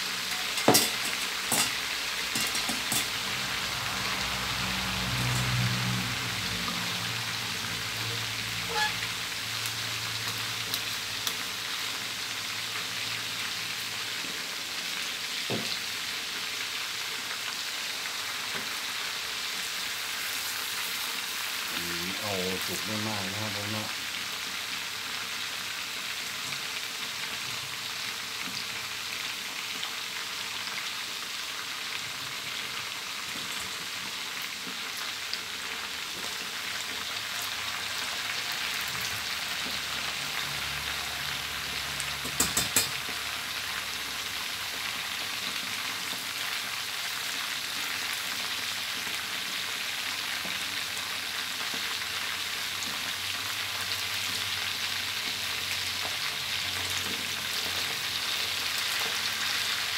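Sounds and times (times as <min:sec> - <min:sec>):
fish deep-frying in oil: 0:00.0 - 0:59.9
metal ladle clinking on wok: 0:00.3 - 0:03.1.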